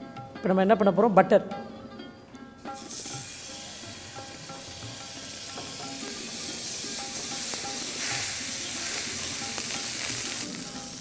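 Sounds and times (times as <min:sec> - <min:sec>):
butter sizzling in frying pan: 0:02.8 - 0:11.0.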